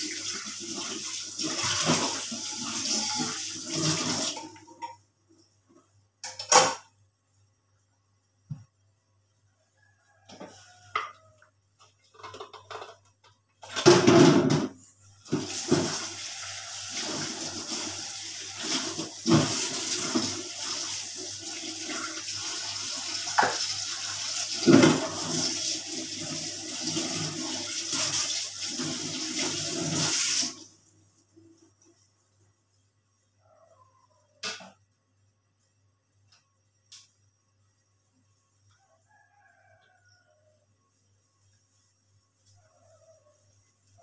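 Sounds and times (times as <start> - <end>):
water running: 0.0 - 4.9, 15.2 - 32.1.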